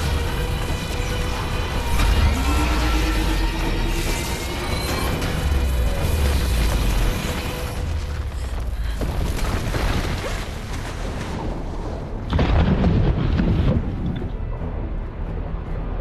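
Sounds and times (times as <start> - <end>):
explosion boom and rumble: 4.2 - 14.4.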